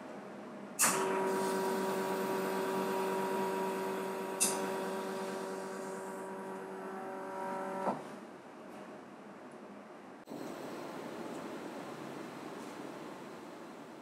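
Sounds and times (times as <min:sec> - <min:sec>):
espresso machine pump tone: 0:00.8 - 0:08.0.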